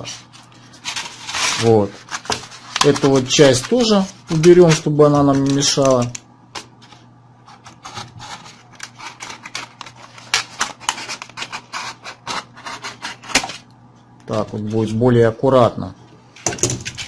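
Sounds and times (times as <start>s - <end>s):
plastic crackling and clicking: 4.5s - 6.7s.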